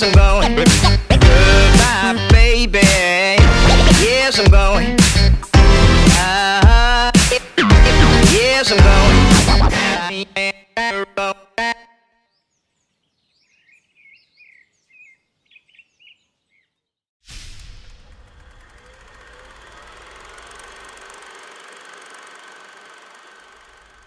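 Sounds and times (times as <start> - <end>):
small birds chirping: 12.3 - 17.0.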